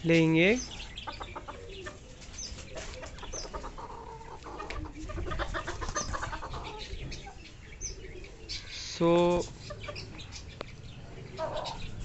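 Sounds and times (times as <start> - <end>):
chickens clucking: 0.0 - 12.0
chickens scratching and pecking concrete: 0.0 - 12.0.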